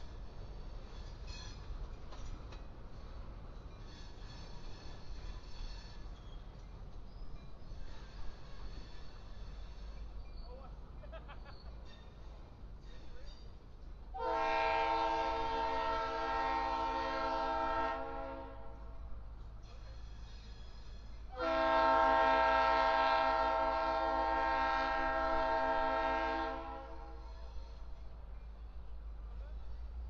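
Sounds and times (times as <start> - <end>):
locomotive air horn blasts: 14.2 - 18.9, 21.3 - 27.2.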